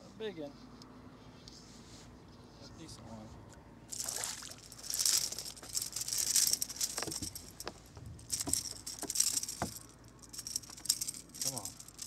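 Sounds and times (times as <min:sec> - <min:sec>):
fish splashing in water: 0:03.9 - 0:05.5.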